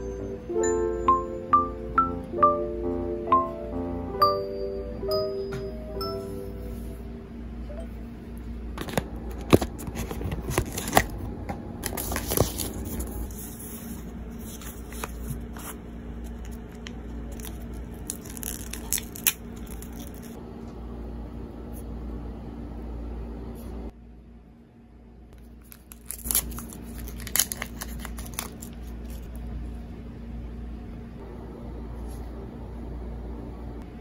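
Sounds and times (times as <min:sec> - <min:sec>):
low steady hum: 0:00.0 - 0:34.0
packaging being torn: 0:16.5 - 0:20.4, 0:25.6 - 0:29.3.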